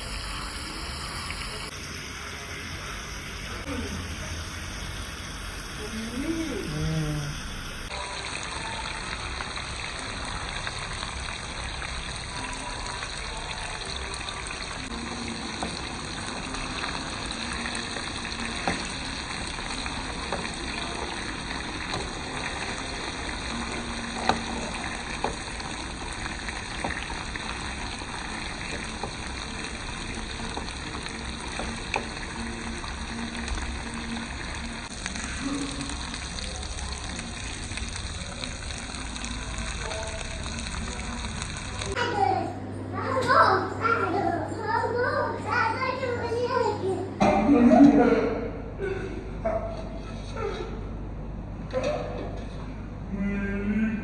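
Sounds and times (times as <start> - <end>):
fish sizzling in oil: 0.0 - 42.0.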